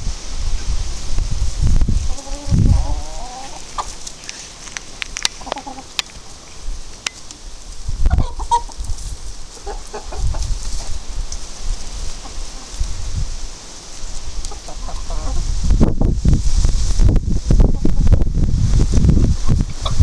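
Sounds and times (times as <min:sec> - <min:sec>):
hens clucking: 0:02.0 - 0:06.5, 0:08.0 - 0:11.2, 0:11.9 - 0:12.9, 0:14.4 - 0:15.6.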